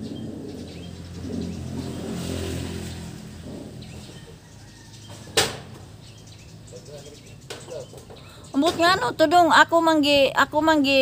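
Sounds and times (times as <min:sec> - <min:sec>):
vehicle engine passing: 0:00.0 - 0:07.9.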